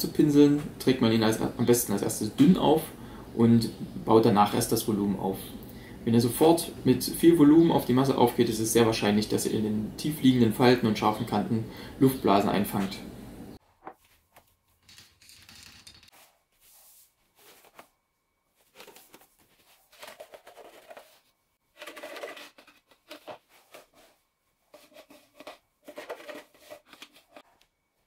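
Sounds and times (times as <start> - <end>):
plastic tubs and cans handled: 18.6 - 27.6.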